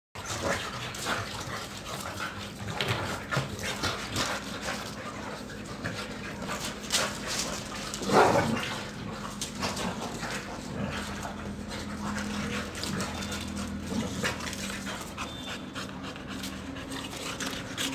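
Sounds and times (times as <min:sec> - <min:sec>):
dogs whining and barking: 0:03.7 - 0:17.9.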